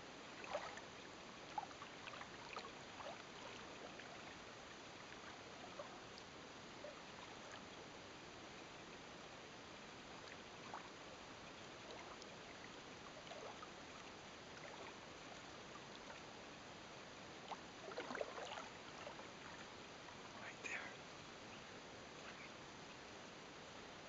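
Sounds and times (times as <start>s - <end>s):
small splashes: 0.4s - 0.8s, 1.5s - 4.4s, 11.8s - 16.3s, 17.4s - 19.7s
water lapping against boat hull: 0.4s - 6.3s, 10.1s - 16.4s, 17.4s - 20.4s
steady hiss: 18.7s - 24.0s.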